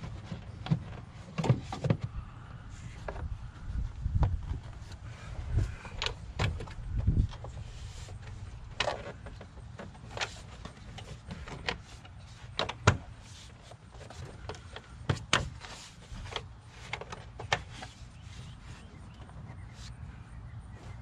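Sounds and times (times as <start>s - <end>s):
plastic and rubber clicks and knocks: 8.2s - 13.2s.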